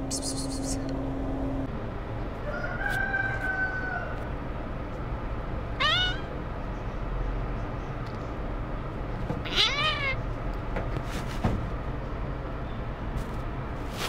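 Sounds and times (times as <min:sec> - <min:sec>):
kitten meowing: 0:05.8 - 0:06.3, 0:09.4 - 0:10.2.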